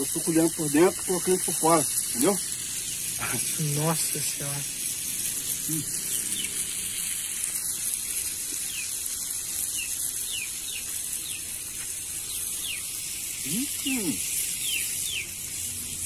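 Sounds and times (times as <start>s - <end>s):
fish sizzling in hot oil: 0.0s - 16.0s
bird chirps: 5.7s - 6.7s, 8.6s - 9.0s, 9.7s - 11.5s, 12.2s - 16.0s.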